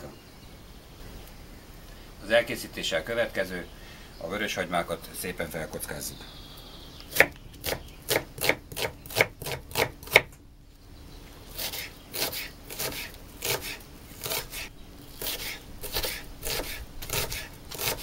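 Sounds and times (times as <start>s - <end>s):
knife chopping on wooden board: 7.1s - 10.3s.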